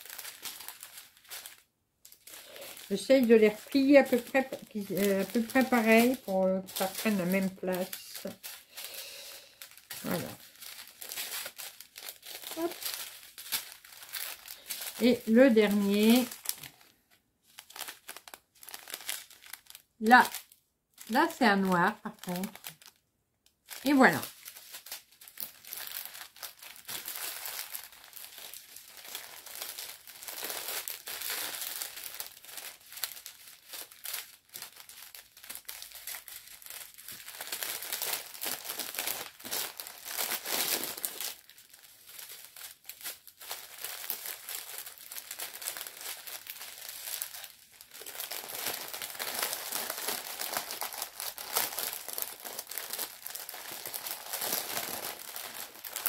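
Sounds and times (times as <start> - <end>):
plastic packaging crinkling: 0.0 - 56.0.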